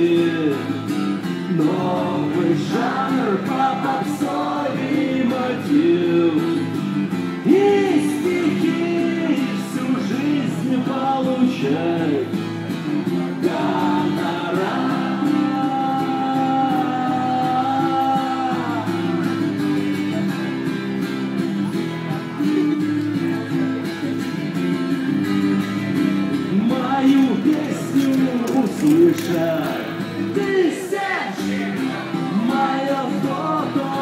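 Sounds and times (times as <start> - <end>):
street band playing chords: 0.0 - 34.0
person singing: 13.4 - 19.5, 26.3 - 34.0.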